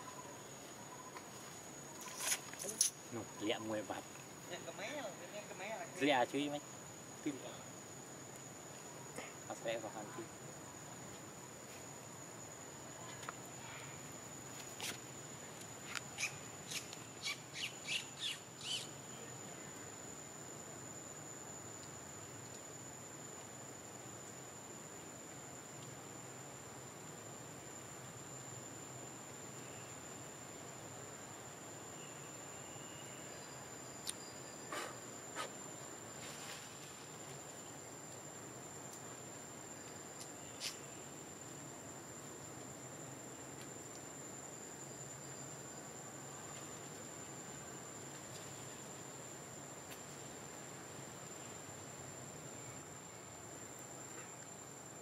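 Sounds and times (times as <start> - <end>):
faint background hiss: 0.0 - 55.0
high-pitched insect trill: 0.0 - 55.0
animal chirping calls: 16.2 - 18.9.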